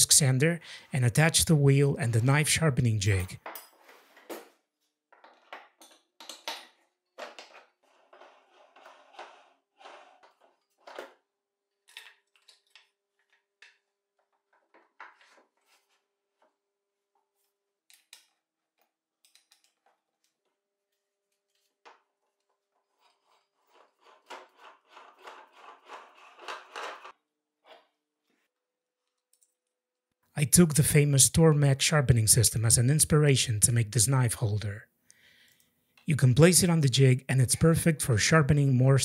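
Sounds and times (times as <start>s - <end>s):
wood scraping and rubbing: 7.2s - 11.1s, 22.6s - 27.9s.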